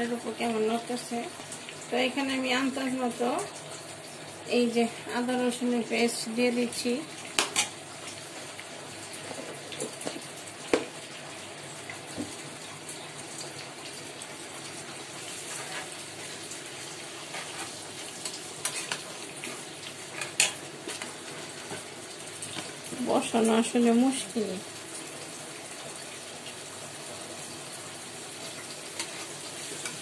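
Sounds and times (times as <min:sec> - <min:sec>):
onions sizzling in hot oil: 0:00.0 - 0:30.0.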